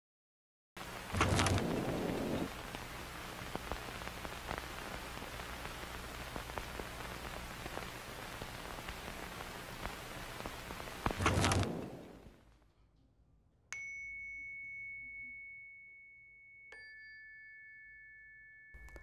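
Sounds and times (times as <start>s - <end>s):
rush of noise: 0.8s - 12.4s
crackling static and hiss: 0.8s - 12.7s
scattered pops: 0.8s - 12.7s
low electrical hum: 0.8s - 13.0s.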